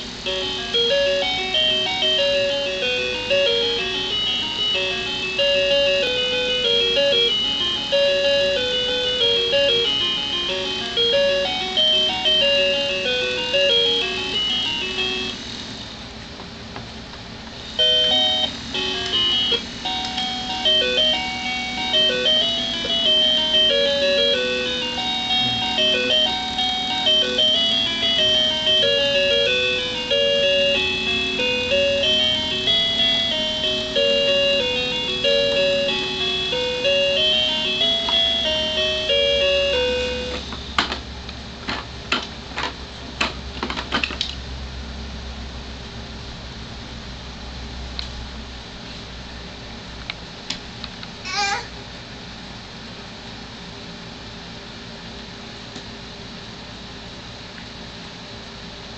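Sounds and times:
electronic toy beeping melody: 0:00.2 - 0:15.5, 0:17.8 - 0:40.5.

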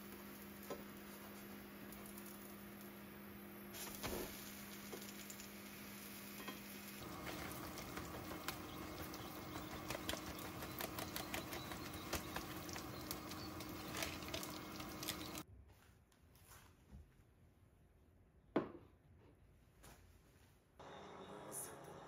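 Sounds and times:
pancake sizzling in oil: 0:03.7 - 0:15.4.

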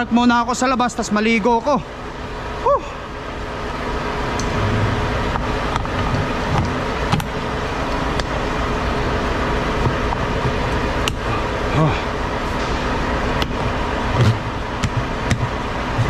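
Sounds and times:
diesel truck engine idling: 0:00.0 - 0:16.0.

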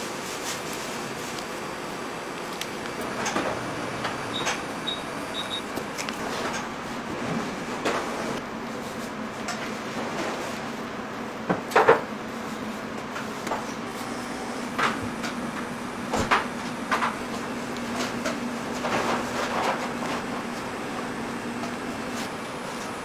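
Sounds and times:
steady low hum: 0:13.5 - 0:23.0.

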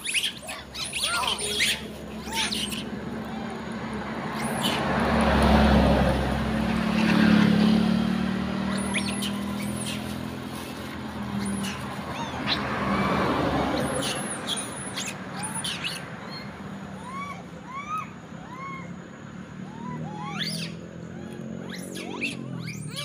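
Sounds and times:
high quick chirps and squeaks: 0:00.0 - 0:03.0, 0:08.7 - 0:12.7, 0:13.8 - 0:16.5, 0:21.7 - 0:23.0
rising and falling calls: 0:00.0 - 0:23.0
vehicle engine humming: 0:00.0 - 0:23.0.

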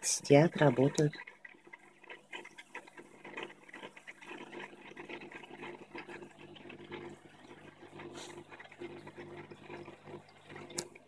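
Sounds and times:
aquarium water bubbling: 0:00.0 - 0:11.0.

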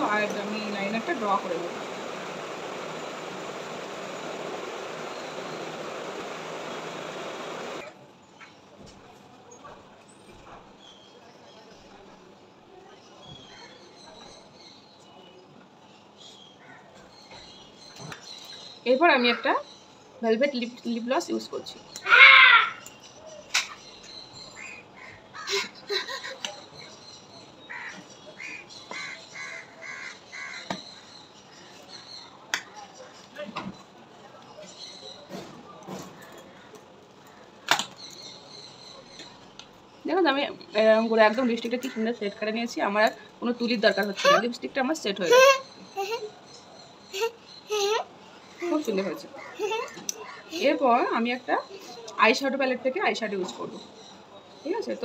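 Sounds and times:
crows cawing: 0:28.9 - 0:30.8.

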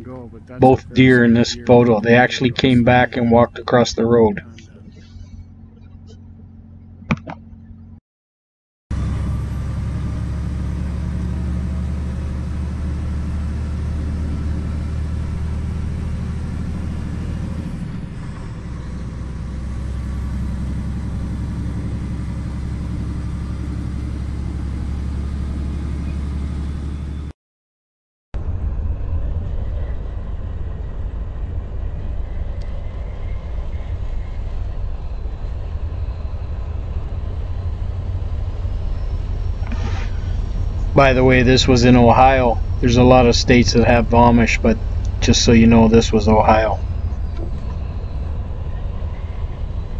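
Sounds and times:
truck engine and road drone: 0:00.0 - 0:08.0, 0:08.9 - 0:27.4, 0:28.4 - 0:49.9.

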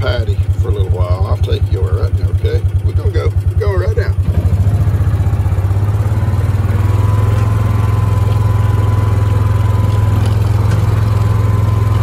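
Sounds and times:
vehicle engine droning: 0:00.0 - 0:12.0.

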